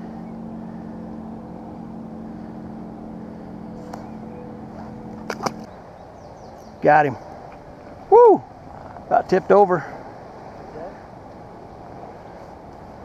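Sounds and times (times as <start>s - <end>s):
motorboat engine humming: 0.0s - 13.0s
fish splashing in water: 5.2s - 5.7s.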